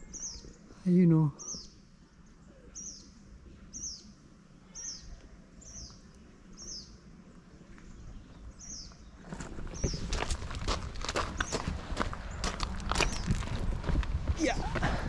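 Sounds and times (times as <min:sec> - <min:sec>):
footsteps: 0:09.2 - 0:15.0.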